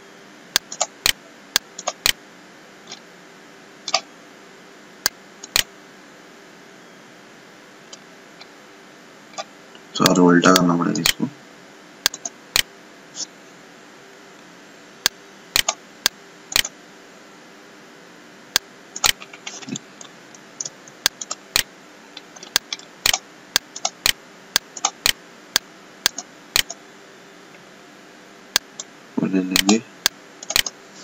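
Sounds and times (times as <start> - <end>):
faint steady hum: 0.0 - 31.0
computer mouse clicks: 0.5 - 2.2, 5.0 - 5.7, 12.0 - 12.7, 15.0 - 15.8, 16.5 - 16.7, 19.0 - 19.8, 20.6 - 25.2, 26.0 - 26.8, 30.4 - 30.8
keyboard keystrokes: 1.8 - 2.2.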